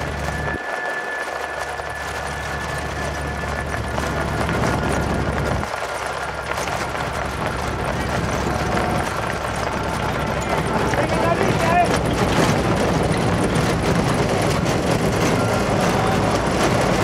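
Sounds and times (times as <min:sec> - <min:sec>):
vehicle rumble: 0:00.0 - 0:17.0
wind noise: 0:00.0 - 0:17.0
person talking: 0:10.9 - 0:12.0.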